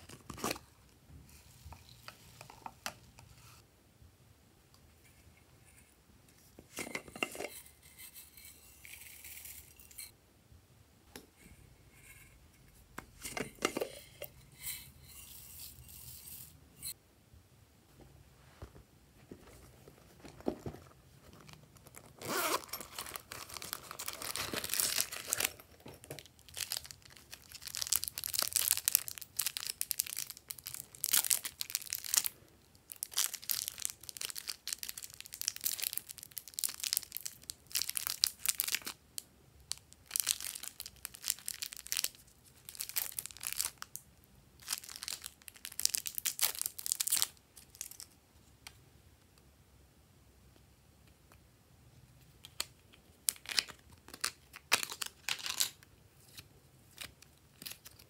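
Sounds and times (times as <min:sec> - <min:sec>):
plastic wrapping crinkling and tearing: 0:21.4 - 0:32.3, 0:32.9 - 0:39.0, 0:39.7 - 0:44.0, 0:44.6 - 0:48.1, 0:53.2 - 0:56.4.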